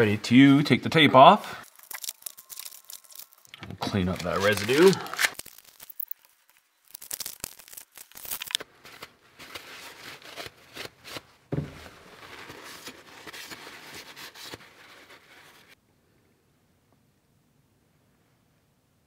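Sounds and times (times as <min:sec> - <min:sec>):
paper towel crinkling: 0:01.6 - 0:15.8.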